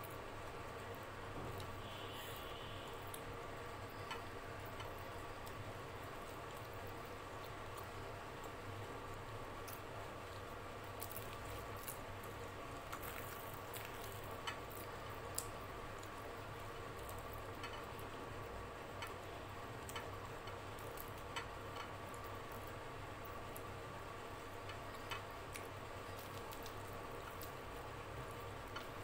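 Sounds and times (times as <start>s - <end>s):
faint steady hum: 0.0s - 29.0s
bread tearing and chewing: 9.5s - 16.2s, 24.7s - 29.0s.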